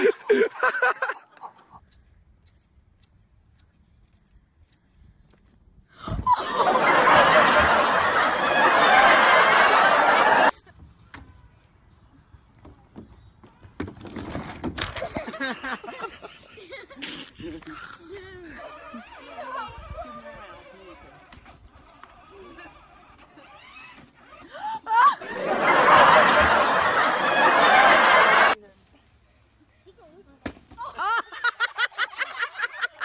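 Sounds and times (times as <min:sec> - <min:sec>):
loud laughter: 0:00.0 - 0:01.8, 0:06.2 - 0:10.7, 0:15.0 - 0:20.9, 0:22.2 - 0:28.6, 0:30.8 - 0:33.0
voices: 0:15.9 - 0:31.2.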